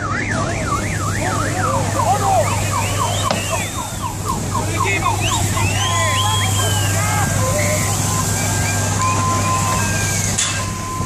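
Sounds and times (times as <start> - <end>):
police siren chirping: 0.0 - 11.0
second siren swooping: 0.0 - 11.0.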